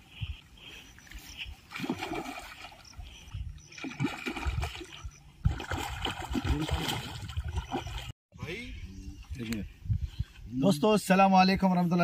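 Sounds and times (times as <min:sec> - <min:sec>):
fish splashing in water: 0:01.7 - 0:08.1.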